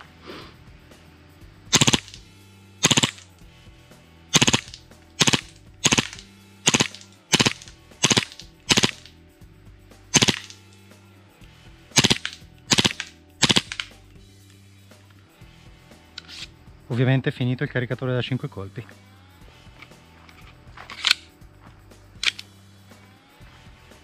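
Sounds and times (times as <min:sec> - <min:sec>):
airsoft pistol firing bursts: 0:01.7 - 0:02.2, 0:02.8 - 0:03.3, 0:04.3 - 0:09.1, 0:10.1 - 0:10.6, 0:12.0 - 0:13.9.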